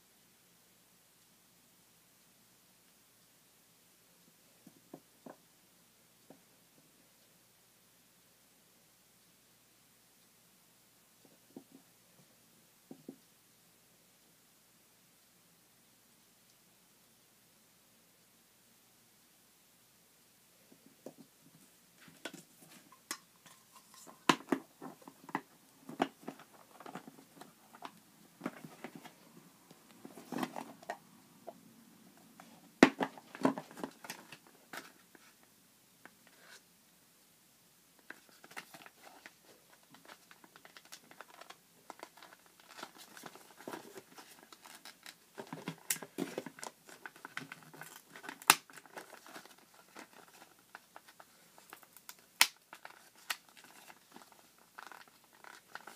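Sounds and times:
packaging crinkling: 38.1s - 55.9s.

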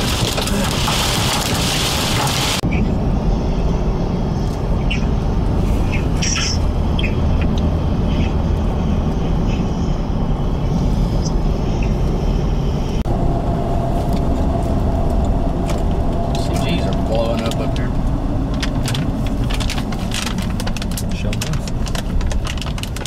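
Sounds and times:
hailstones ticking on car: 0.0s - 2.6s, 18.6s - 23.0s
car road and engine rumble: 0.0s - 23.0s.

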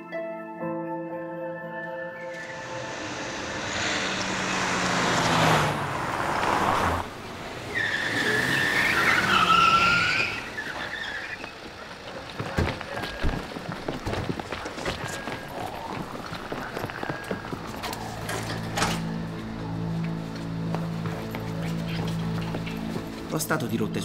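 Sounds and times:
car driving past fast: 2.4s - 11.5s
tyres squealing: 7.6s - 23.4s.

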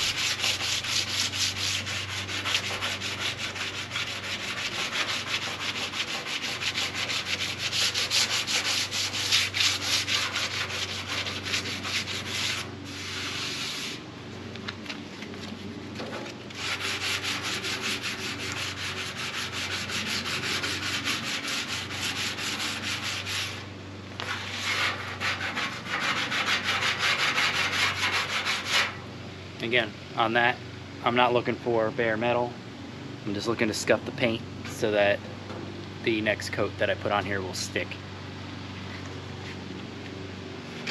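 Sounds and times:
sandpaper sanding painted metal: 0.0s - 14.0s, 16.2s - 23.6s, 24.2s - 29.0s.

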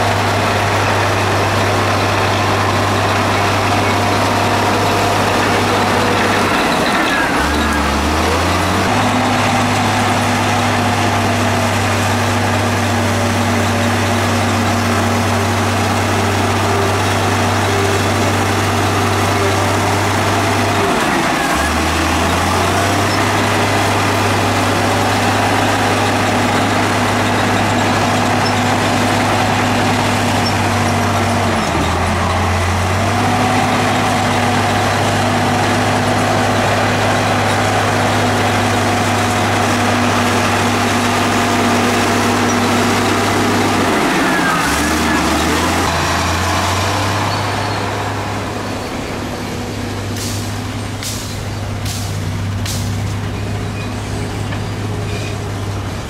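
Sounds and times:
heavy diesel engine running: 0.0s - 56.0s.

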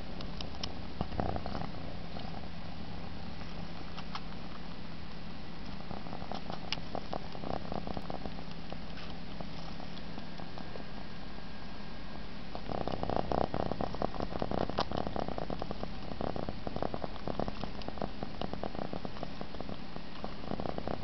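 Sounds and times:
cat purring: 0.0s - 21.0s
soft sucking clicks: 3.4s - 11.0s.

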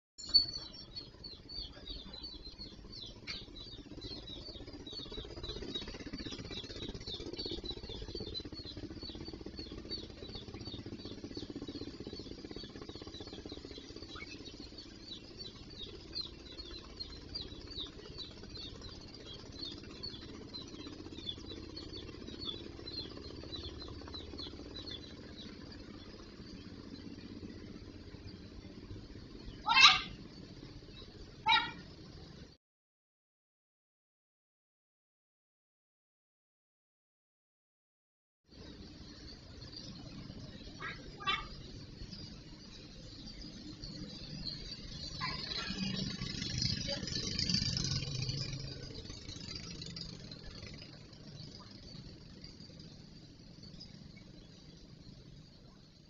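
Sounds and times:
small animal chirping: 0.3s - 25.4s, 29.6s - 30.2s, 31.4s - 31.9s, 40.6s - 42.7s, 44.0s - 49.9s.

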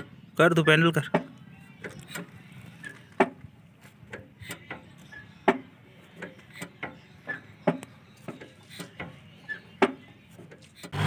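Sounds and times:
short squeak: 1.8s - 3.2s, 4.4s - 5.6s, 6.4s - 9.9s.

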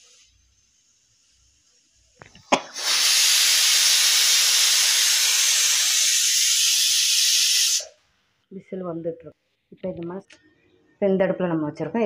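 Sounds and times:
steam hissing: 0.0s - 8.0s.

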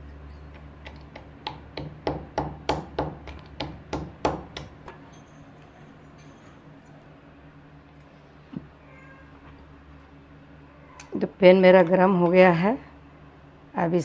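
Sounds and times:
metal pestle pounding in mortar: 1.1s - 4.9s.

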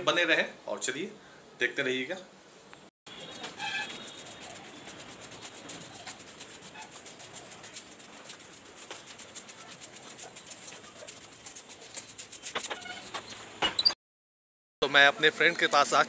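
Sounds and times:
phone microphone rubbing rustle: 3.2s - 13.6s.

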